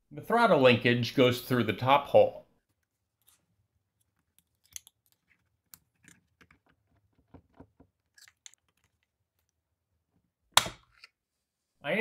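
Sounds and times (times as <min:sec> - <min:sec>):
screwdriver and metal parts clicking: 0:04.0 - 0:06.8.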